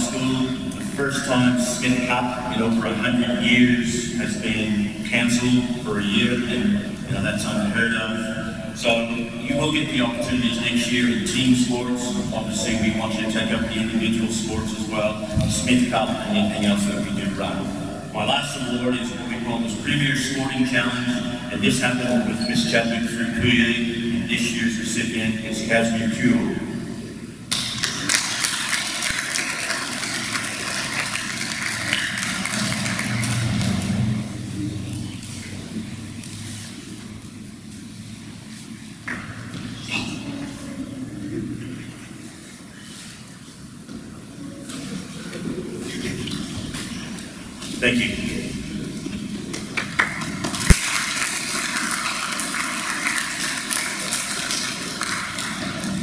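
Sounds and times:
audience applauding: 27.5 - 34.2, 49.5 - 56.0.

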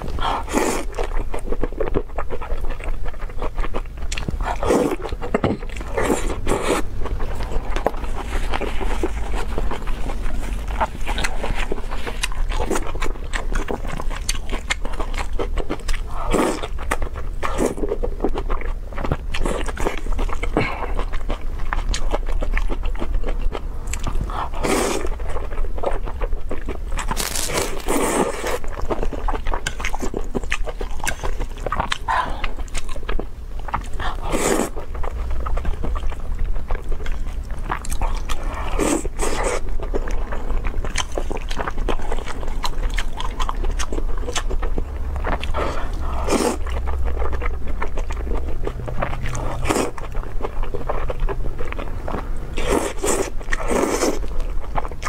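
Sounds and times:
steady low hum: 0.0 - 55.0
wet chewing and mouth smacks: 0.0 - 55.0
slurping noodles: 24.3 - 25.1, 45.5 - 46.7.

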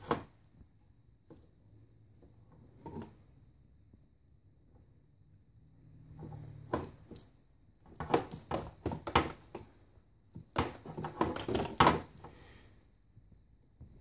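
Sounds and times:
plastic toy rattling and knocking: 7.9 - 9.6, 10.4 - 12.2.

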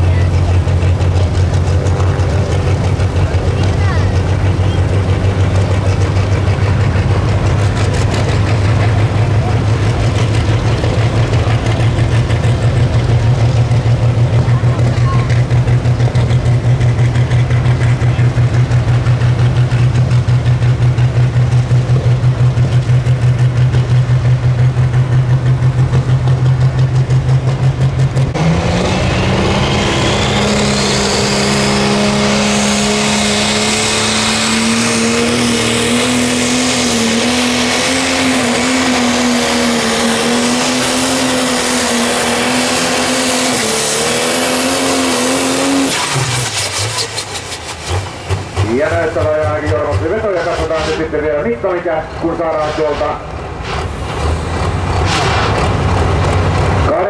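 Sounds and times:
tractor diesel engine revving: 0.0 - 57.0.

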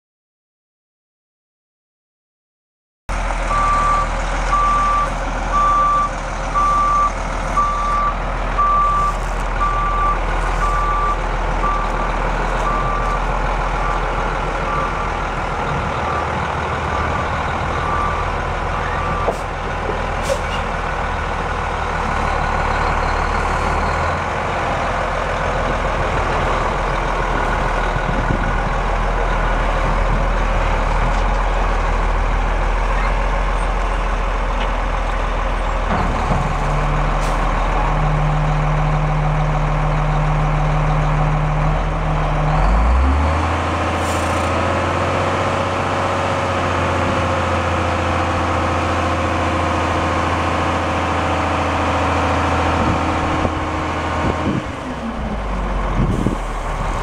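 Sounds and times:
diesel engine running: 3.1 - 57.0
truck reversing alarm beeping: 3.4 - 19.5.

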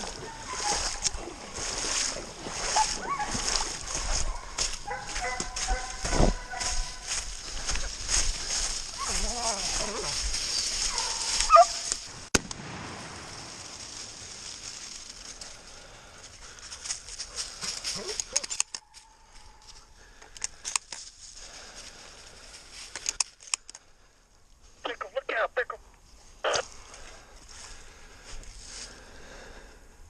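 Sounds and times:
footsteps crunching in dry leaves: 0.0 - 19.9, 26.6 - 29.1
high wavering animal cries: 11.4 - 11.8
sharp crack: 11.9 - 13.9
small clicks: 22.9 - 23.9.

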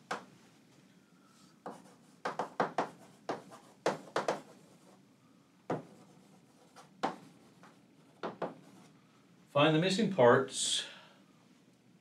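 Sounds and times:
chalk writing on blackboard: 1.6 - 5.0, 5.7 - 9.0.

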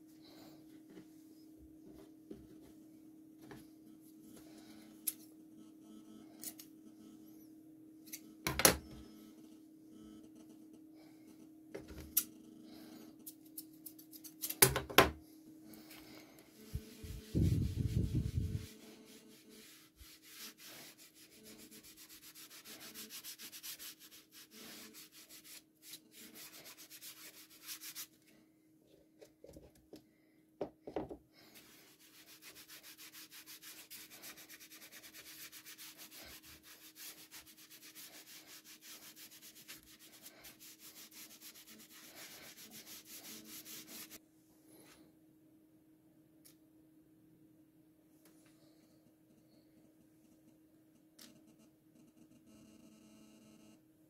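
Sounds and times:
rubbing on wood: 16.6 - 28.1, 31.6 - 44.2.

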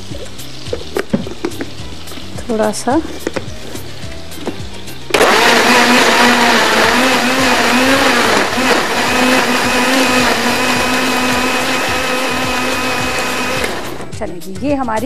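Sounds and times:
blender motor whine: 5.1 - 14.1.

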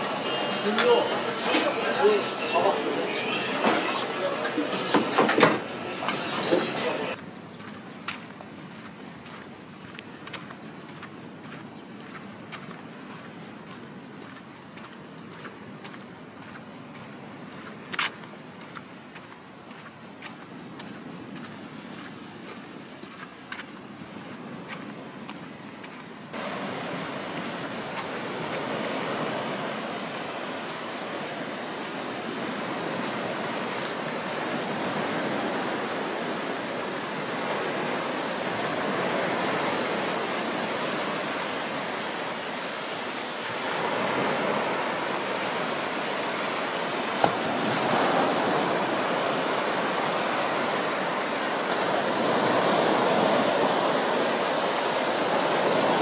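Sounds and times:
sea waves breaking on a beach: 0.0 - 56.0.

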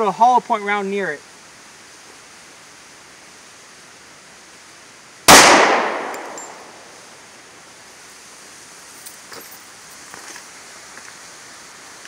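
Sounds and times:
pistol shot with echo: 5.3 - 7.0.

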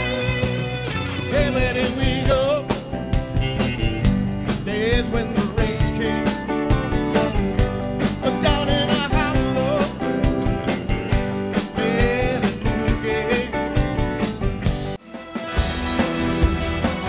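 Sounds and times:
electric guitars: 0.0 - 17.0
steady drum beat: 0.0 - 17.0
male singer: 1.2 - 3.2, 4.5 - 10.3, 11.6 - 14.0.

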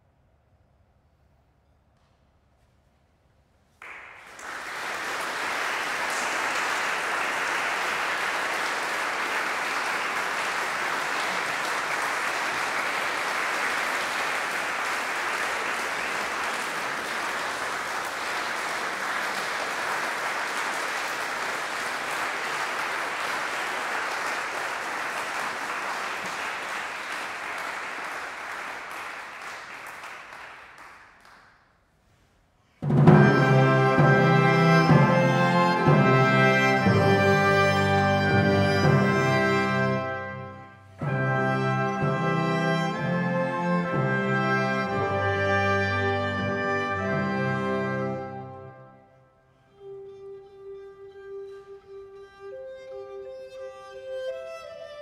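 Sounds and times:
audience applauding: 3.8 - 31.6, 41.1 - 48.8.

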